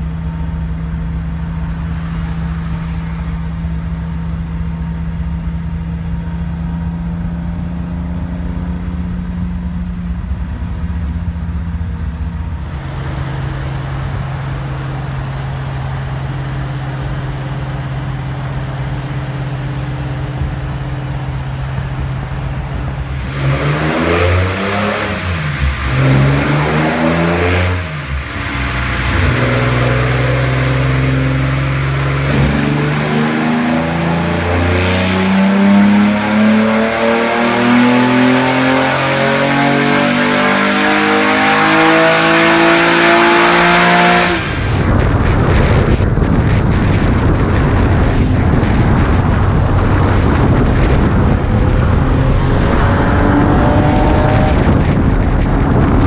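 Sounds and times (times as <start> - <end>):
car engine droning and revving: 0.0 - 56.0.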